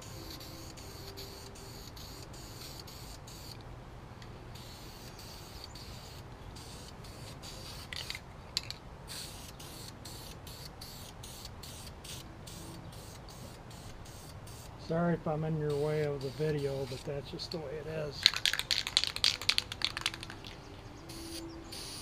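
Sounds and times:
aerosol can spraying: 0.0s - 3.6s, 4.6s - 8.2s, 9.1s - 14.7s, 15.7s - 17.1s, 18.2s - 20.5s.

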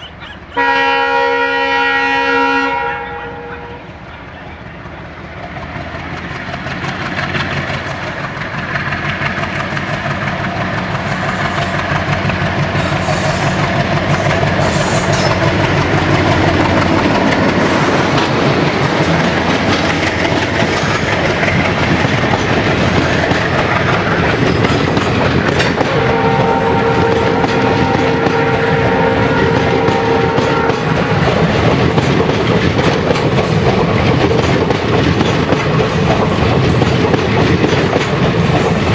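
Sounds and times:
diesel locomotive engine: 0.0s - 38.9s
train horn: 0.6s - 4.0s, 25.7s - 31.4s
train wheels clattering: 5.1s - 38.9s.

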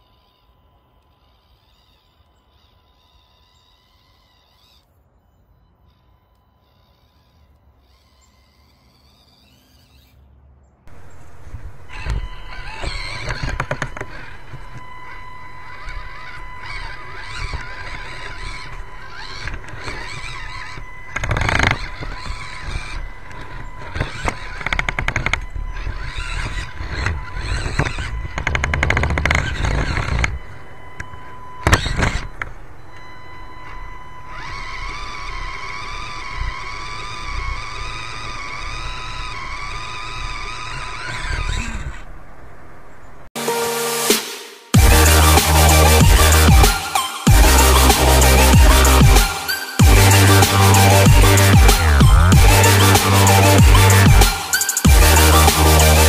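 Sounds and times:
small electric motor whine: 0.0s - 56.0s
rapid ticking: 10.9s - 41.5s, 43.4s - 56.0s.

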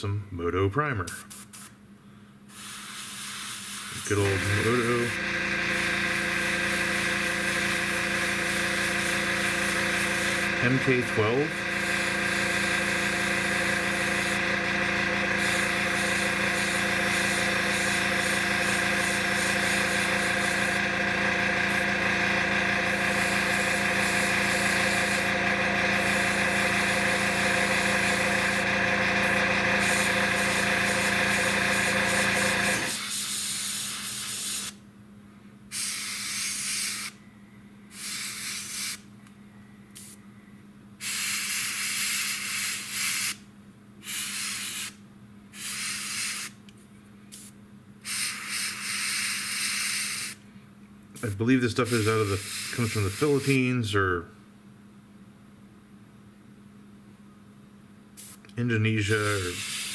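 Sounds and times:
compressor hum: 0.0s - 59.9s
airbrush spraying hiss: 1.1s - 1.8s, 2.5s - 14.4s, 15.3s - 20.8s, 22.9s - 25.3s, 25.9s - 28.6s, 29.2s - 34.8s, 35.7s - 37.2s, 37.9s - 39.0s, 40.0s - 40.2s, 41.0s - 43.4s, 44.0s - 45.0s, 45.6s - 46.6s, 47.3s - 50.4s, 51.2s - 53.6s, 58.2s - 59.9s.

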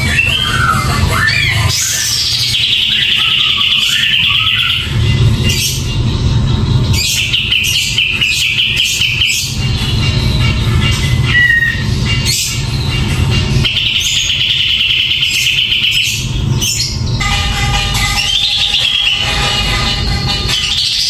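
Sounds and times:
bulbul singing: 0.0s - 21.0s
background music: 17.2s - 21.0s.

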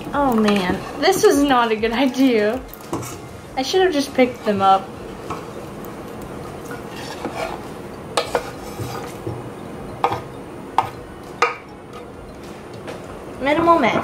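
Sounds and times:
knife scraping on cutting board: 6.7s - 9.4s
knife clacking against metal pot: 8.2s - 9.4s.

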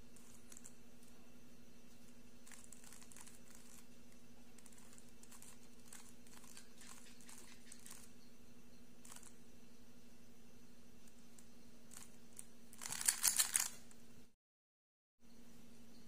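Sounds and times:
steady low hum: 0.0s - 14.4s, 15.2s - 16.0s
plastic puzzle cube clicking turns: 12.8s - 13.8s.

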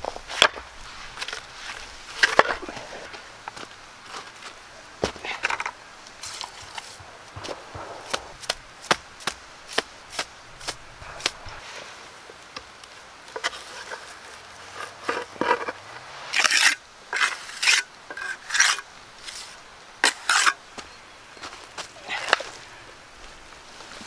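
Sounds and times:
hand tool scraping: 5.0s - 12.0s, 13.3s - 20.9s.

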